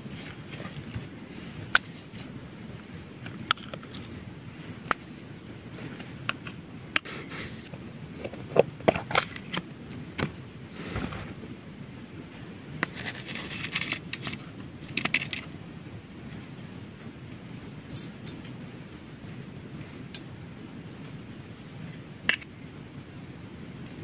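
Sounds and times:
spoon scraping rustles: 12.8s - 15.5s.

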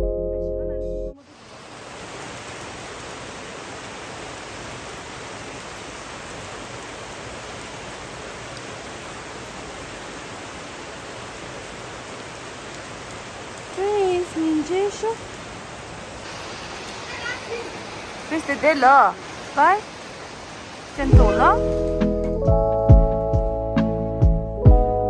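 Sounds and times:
steady rain falling: 1.2s - 25.0s.

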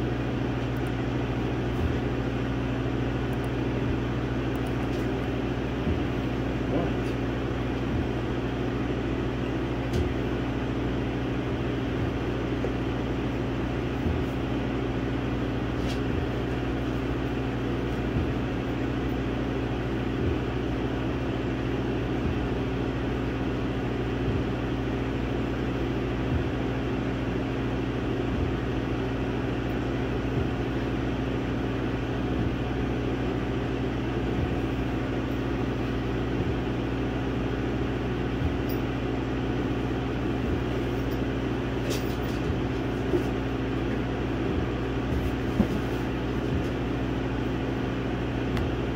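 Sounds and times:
laser engraver humming: 0.0s - 48.9s.

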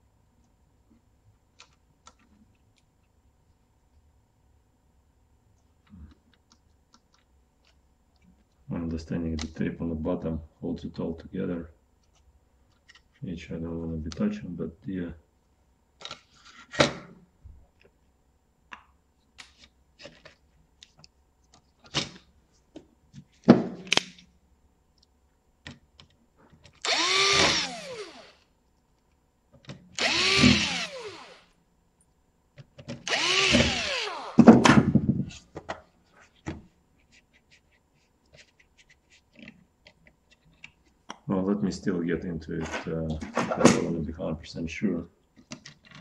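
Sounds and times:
cordless drill motor whine: 26.8s - 28.4s, 30.0s - 31.5s, 33.0s - 34.4s.

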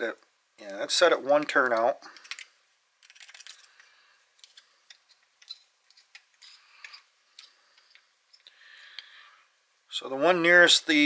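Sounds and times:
screwdriver clicking and scraping: 1.7s - 8.5s.

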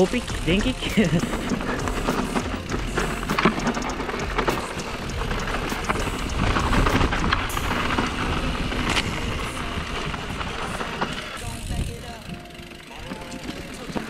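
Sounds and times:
bike knocks and rattles: 0.0s - 14.0s
tyres rolling over dirt and leaves: 0.0s - 14.0s
wind on microphone: 4.2s - 12.4s.

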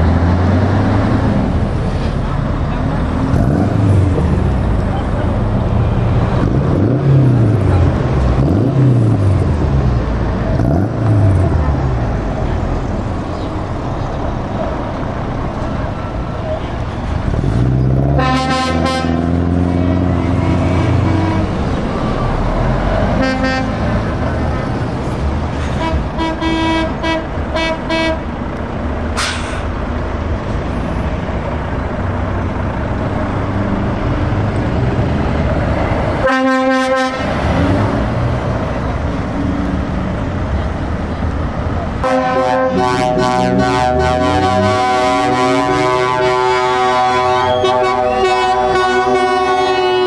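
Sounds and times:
truck diesel engines rumbling: 0.0s - 50.0s
truck horn blasts: 18.1s - 21.7s, 23.1s - 24.1s, 25.7s - 28.3s, 36.2s - 37.4s, 42.0s - 50.0s.

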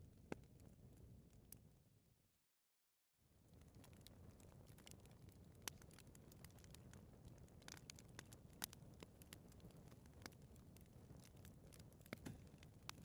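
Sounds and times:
fire crackling: 3.4s - 13.0s.

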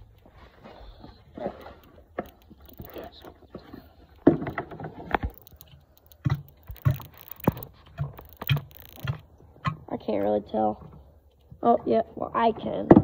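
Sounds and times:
sharp clicks and knocks: 1.0s - 11.6s.

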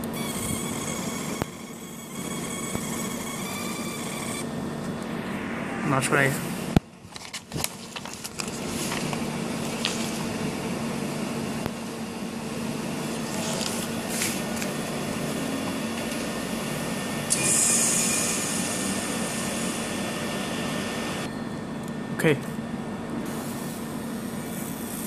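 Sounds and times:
fan hum: 0.0s - 25.0s
hiss of running machinery: 15.8s - 21.3s, 23.3s - 25.0s.

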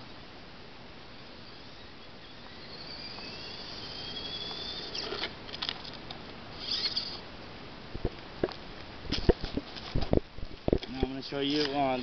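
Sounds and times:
toy car motor whining: 1.4s - 6.0s, 6.6s - 7.2s.

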